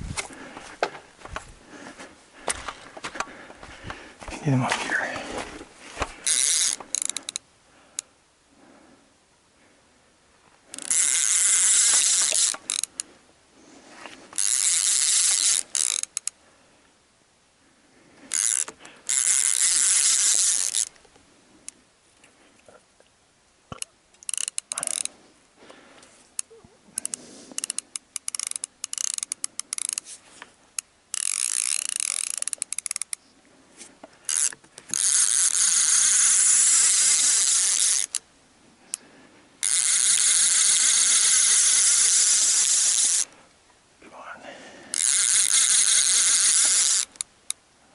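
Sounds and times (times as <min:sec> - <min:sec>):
fishing reel ratcheting: 0:06.2 - 0:07.5, 0:10.7 - 0:13.0, 0:14.4 - 0:16.4, 0:18.3 - 0:21.0, 0:23.8 - 0:25.1, 0:26.4 - 0:30.1, 0:30.8 - 0:33.2, 0:34.3 - 0:38.2, 0:39.6 - 0:43.4, 0:44.9 - 0:47.6.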